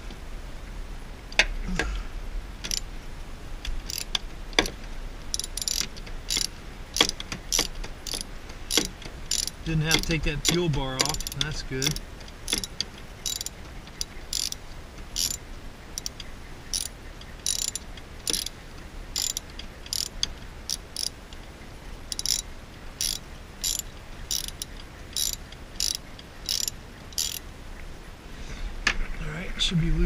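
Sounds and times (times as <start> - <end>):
socket ratchet clicking: 2.6 - 2.9, 3.8 - 14.6, 15.2 - 15.4, 16.0 - 18.6, 19.2 - 21.2, 22.1 - 27.4.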